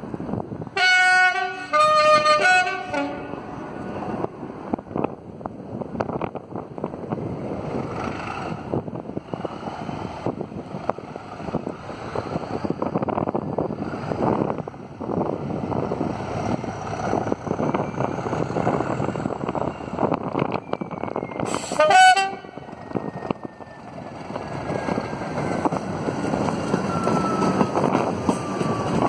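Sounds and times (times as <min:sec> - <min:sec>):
two-tone locomotive horn: 0:00.8 - 0:03.7, 0:21.5 - 0:22.7.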